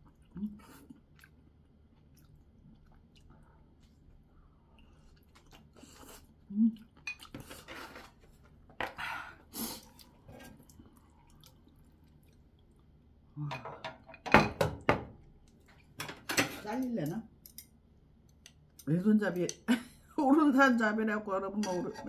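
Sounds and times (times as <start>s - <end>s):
person chewing and slurping: 4.8s - 8.4s.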